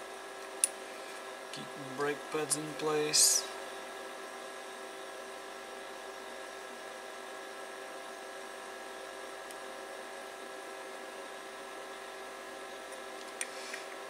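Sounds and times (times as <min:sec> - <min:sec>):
steady mains hum: 0:00.0 - 0:14.0
low hiss: 0:01.1 - 0:03.6.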